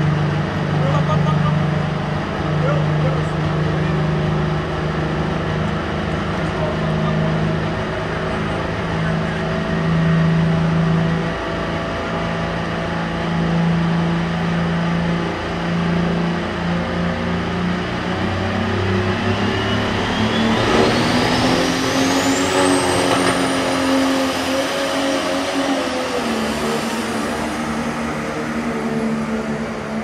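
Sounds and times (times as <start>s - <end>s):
tractor engine running: 22.0s - 24.7s.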